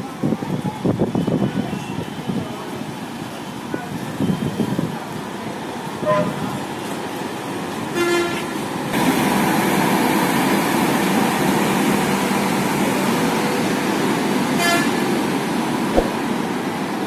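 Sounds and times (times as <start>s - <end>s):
train horn toot: 6.0s - 6.4s, 8.0s - 8.5s, 14.6s - 15.0s.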